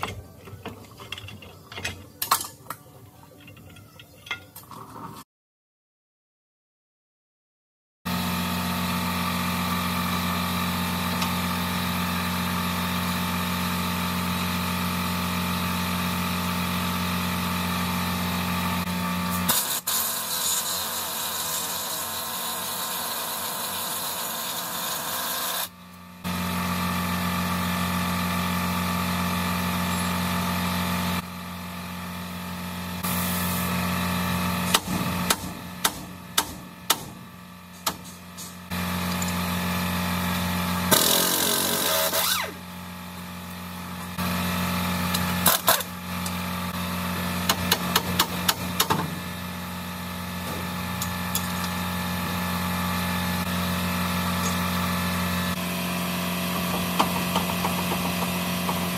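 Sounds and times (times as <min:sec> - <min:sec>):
air impact wrench: 0:18.8 - 0:25.8, 0:33.0 - 0:39.4, 0:40.7 - 0:42.7, 0:45.0 - 0:46.4, 0:47.2 - 0:49.6, 0:50.4 - 0:58.9.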